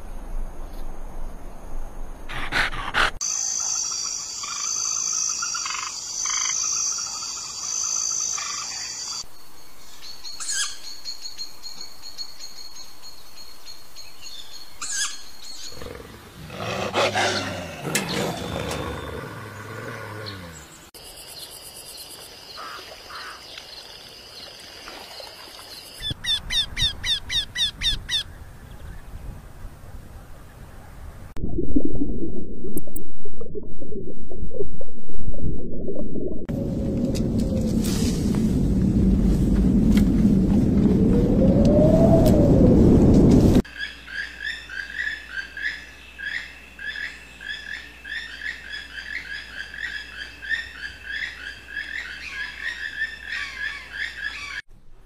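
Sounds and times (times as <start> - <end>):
wolves snarling and growling: 2.3 - 3.2, 15.7 - 20.7.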